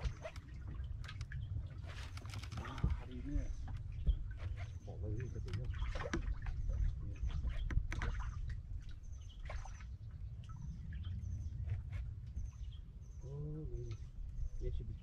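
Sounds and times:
wind on microphone: 0.0s - 15.0s
light knocks and clicks: 5.2s - 6.4s.

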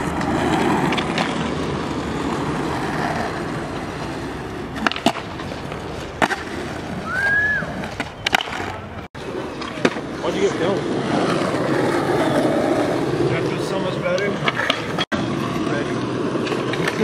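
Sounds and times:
skateboard wheels rolling on concrete: 0.0s - 17.0s
skateboard clacking on ledge: 4.7s - 6.6s.

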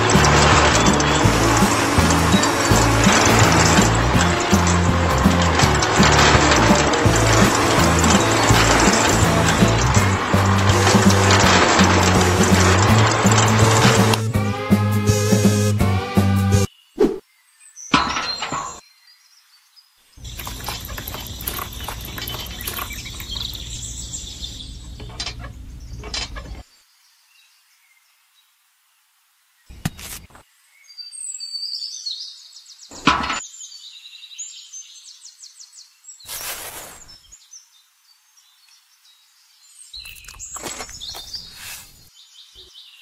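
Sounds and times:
small cement mixer motor running: 0.0s - 14.5s, 20.2s - 25.3s
faint bird chirps: 20.1s - 28.5s.

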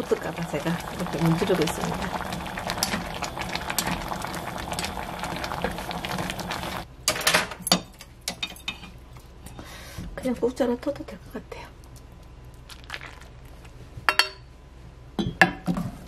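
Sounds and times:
soup bubbling: 0.0s - 6.9s, 12.7s - 13.7s.

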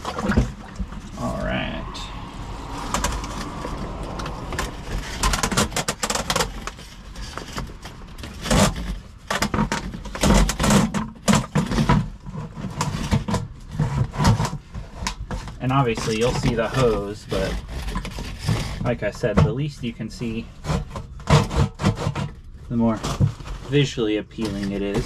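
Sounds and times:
corrugated hose scraping: 0.0s - 25.0s
plastic lid knocking and rattling: 4.4s - 15.6s.

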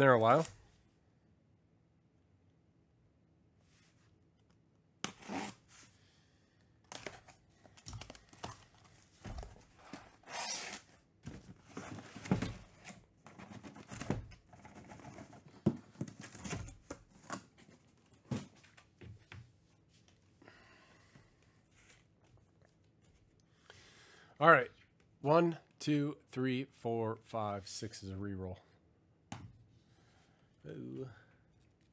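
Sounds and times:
cardboard rustling and scraping: 8.2s - 18.9s
packing tape tearing: 10.2s - 10.9s.

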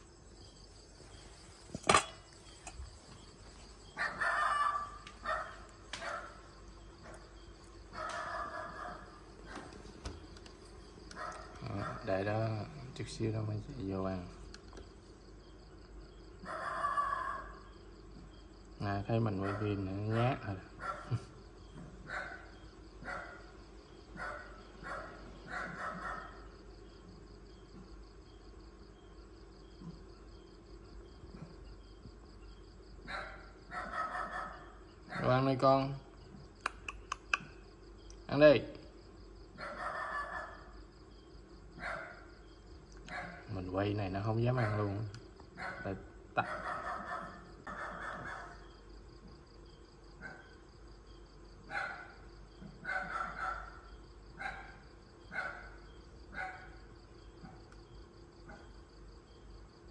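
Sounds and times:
crickets chirping: 0.0s - 59.9s
metal bowl clanking on concrete: 1.8s - 2.8s
dog barking: 4.0s - 7.2s, 7.9s - 9.8s, 11.1s - 12.2s, 16.4s - 17.6s, 19.3s - 21.4s, 22.0s - 26.5s, 33.0s - 35.4s, 39.6s - 40.7s, 41.8s - 42.4s, 43.0s - 43.6s, 44.5s - 48.8s, 50.2s - 50.6s, 51.7s - 57.7s, 58.4s - 58.8s.

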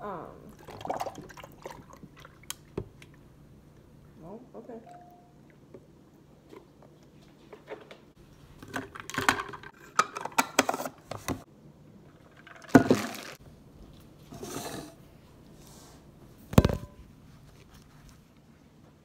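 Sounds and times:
wrapper rustling: 12.7s - 13.4s
object set down on counter: 16.5s - 17.0s.

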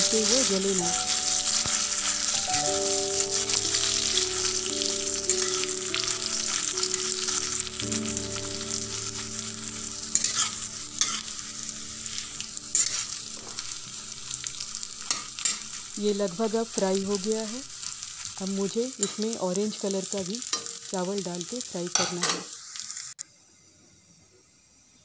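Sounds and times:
metal spatula scraping a pan: 0.0s - 16.0s
rice sizzling in a pan: 0.0s - 23.3s.

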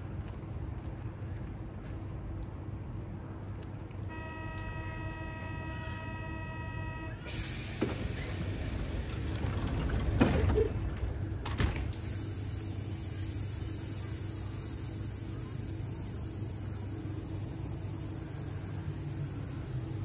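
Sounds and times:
train doors hissing shut: 4.4s - 18.7s.

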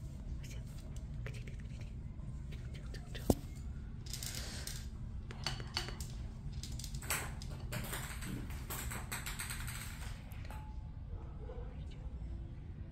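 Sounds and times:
steady low hum: 0.0s - 12.9s
kitten grooming clicks and rustles: 0.4s - 3.7s, 5.2s - 10.8s.

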